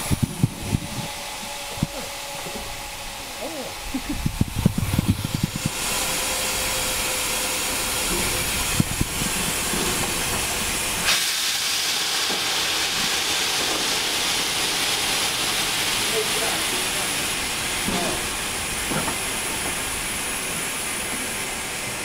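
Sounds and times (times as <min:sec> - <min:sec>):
steam locomotive hissing: 0:00.0 - 0:22.0.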